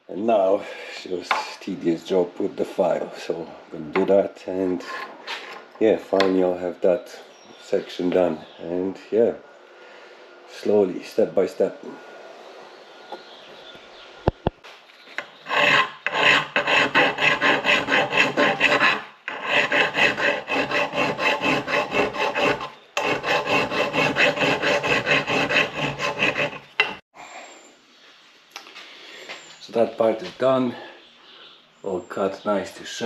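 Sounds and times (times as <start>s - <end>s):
hand file rasping metal: 4.8s - 5.7s, 15.2s - 27.0s.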